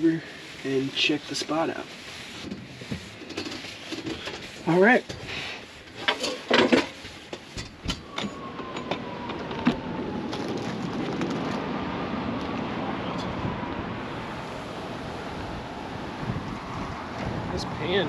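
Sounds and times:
camp cookware clattering: 5.9s - 7.8s
steady rushing noise: 10.2s - 18.0s.

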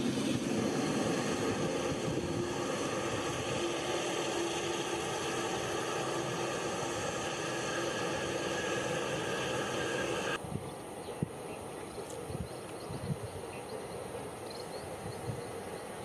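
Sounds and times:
jet engines whining: 0.0s - 10.4s.

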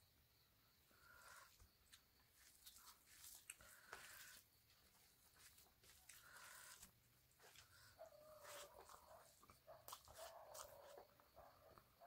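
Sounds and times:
hand squelching rice and gravy: 2.4s - 4.8s, 5.4s - 10.9s.

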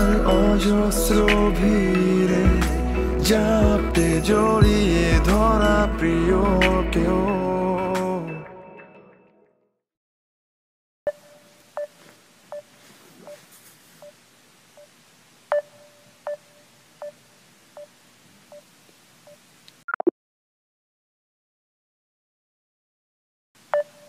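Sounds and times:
phone ringing beeps: 11.1s - 13.4s, 15.5s - 17.2s, 23.7s - 24.0s.

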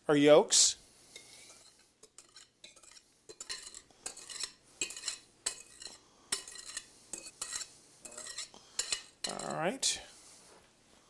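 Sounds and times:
wire whisk scraping glass bowl: 1.2s - 9.6s.

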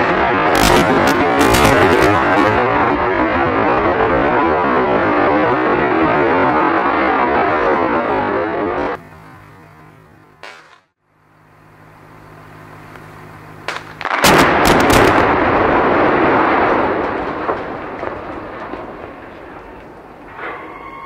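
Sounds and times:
rumble of collapsing concrete: 0.0s - 9.0s, 13.7s - 21.0s
demolition blasts: 0.0s - 9.6s, 13.5s - 21.0s
steady low hum: 0.0s - 20.5s.

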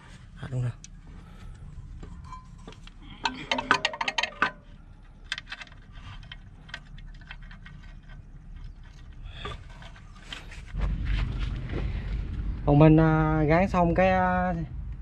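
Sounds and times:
metallic clicks of tools and bolts: 2.1s - 8.2s.

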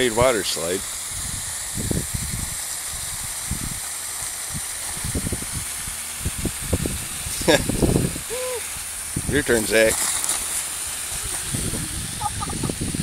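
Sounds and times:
water hissing from a hose: 0.0s - 13.0s.

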